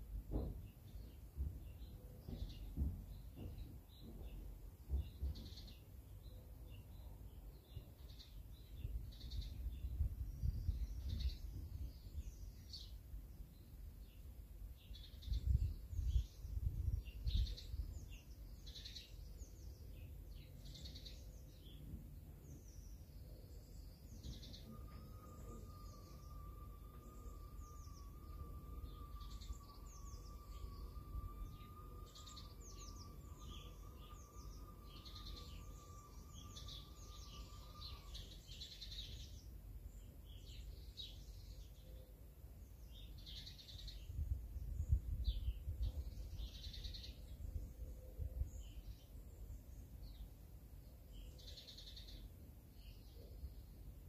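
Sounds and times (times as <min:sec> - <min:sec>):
songbirds chirping: 0:00.0 - 0:54.0
wind rumble on microphone: 0:07.6 - 0:20.4, 0:23.7 - 0:39.2, 0:42.9 - 0:49.7
faint wavering steady tone: 0:23.2 - 0:40.0.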